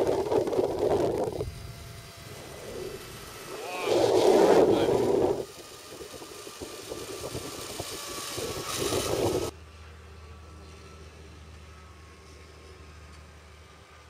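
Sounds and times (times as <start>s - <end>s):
wind buffeting microphone: 0.0s - 9.5s.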